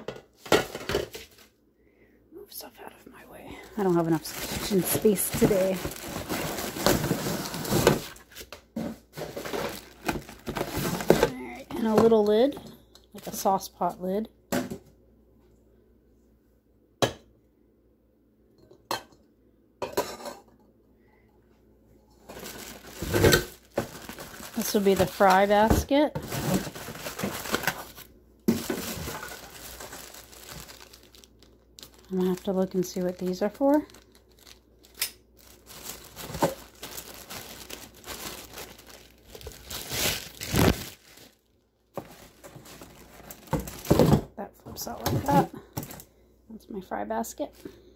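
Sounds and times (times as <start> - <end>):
plastic wrapping crinkling: 3.2 - 12.2, 22.2 - 44.2.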